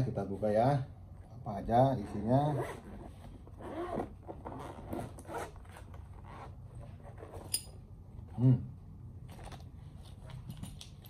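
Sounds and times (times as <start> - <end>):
zipper rasping open: 1.9 - 7.7.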